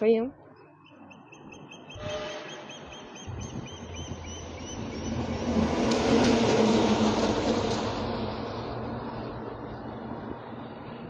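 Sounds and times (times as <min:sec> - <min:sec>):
rolling thunder: 0:03.3 - 0:10.9.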